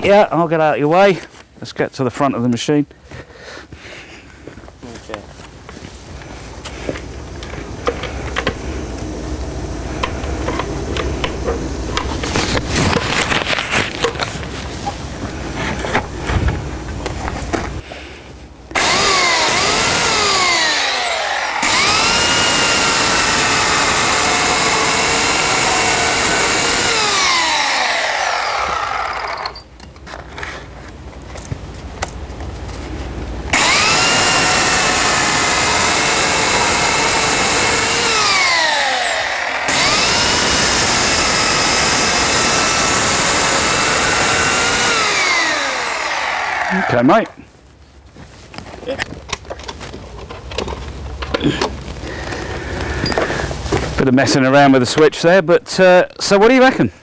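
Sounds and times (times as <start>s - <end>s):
electric chainsaw cutting log: 10.0s - 14.3s, 18.7s - 29.6s, 33.5s - 47.4s
clicks and rustling: 48.4s - 54.0s.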